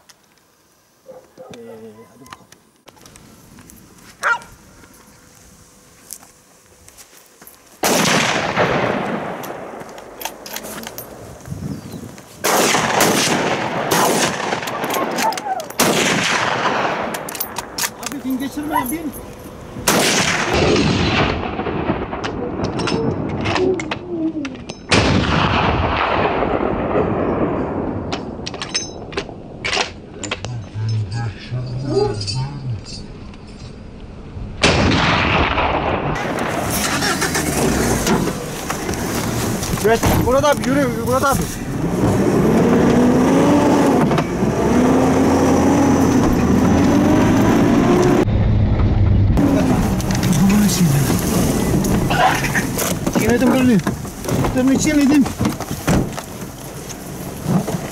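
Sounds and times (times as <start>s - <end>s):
gunshot with rolling echo: 7.8s - 9.8s, 12.4s - 15.2s, 15.8s - 17.6s, 19.8s - 23.4s, 24.9s - 28.4s, 34.6s - 36.8s
vehicle engine rumble: 14.6s - 24.9s, 27.2s - 34.7s, 35.5s - 57.9s.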